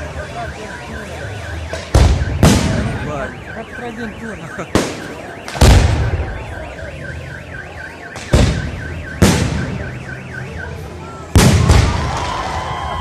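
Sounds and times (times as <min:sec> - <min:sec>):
car alarm siren warbling: 0:00.0 - 0:12.1
fireworks bursting: 0:01.4 - 0:03.4, 0:04.0 - 0:06.6, 0:08.1 - 0:10.0, 0:11.3 - 0:12.9.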